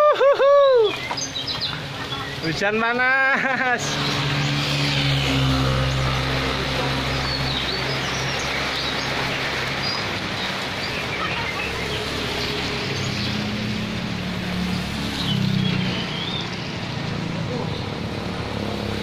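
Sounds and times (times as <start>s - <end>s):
steady rain: 0.0s - 19.0s
tyres on wet road: 0.0s - 19.0s
small birds chirping: 0.6s - 2.8s, 6.8s - 18.2s
motorcycle engine: 3.5s - 8.9s.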